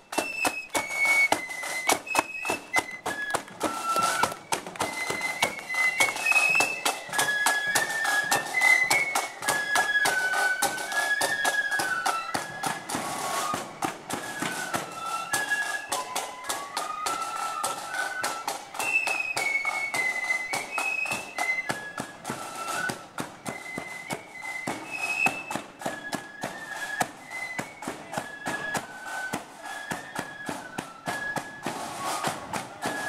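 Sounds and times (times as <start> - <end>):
flutes playing melody: 0.0 - 33.0.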